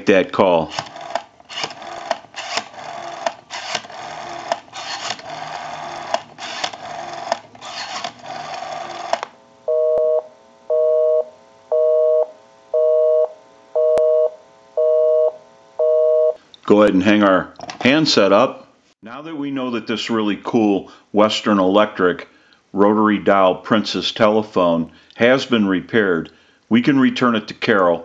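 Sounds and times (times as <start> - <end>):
rotary dial clicking: 0.7 - 9.3
two-tone busy signal beeps: 9.7 - 16.4.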